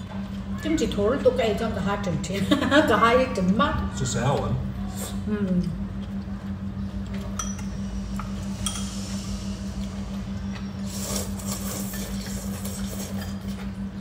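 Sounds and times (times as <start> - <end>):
steady low hum: 0.0 - 14.0
noodles being slurped: 10.8 - 13.6.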